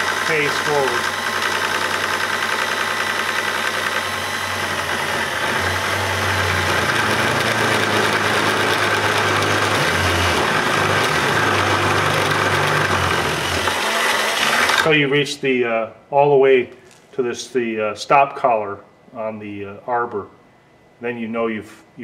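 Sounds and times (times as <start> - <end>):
cordless drill running: 0.0 - 14.9
cutter humming through metal: 0.0 - 14.9.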